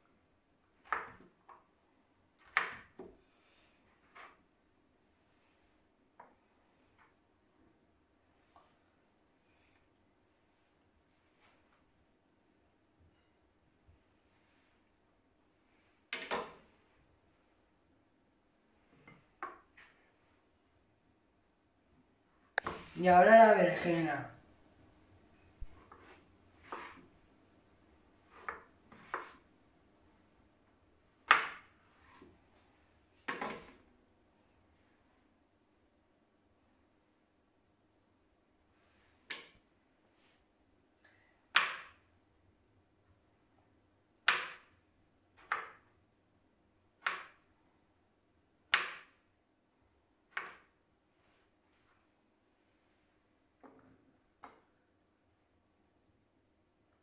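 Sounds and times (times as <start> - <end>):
knife chopping on plastic cutting board: 25.6 - 27.1, 28.3 - 29.4, 45.4 - 45.8, 47.0 - 47.4, 48.7 - 49.2, 50.3 - 50.7
knife slicing eggplant: 25.6 - 27.1.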